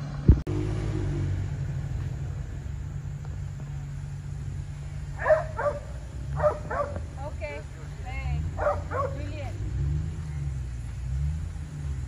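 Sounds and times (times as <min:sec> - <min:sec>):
car engine rumbling: 0:00.0 - 0:12.0
dog yipping: 0:05.2 - 0:07.0, 0:08.6 - 0:09.2.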